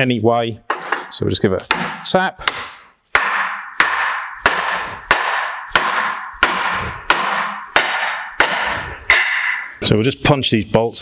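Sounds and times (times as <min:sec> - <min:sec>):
hammer striking metal bolts: 0:01.7 - 0:09.7.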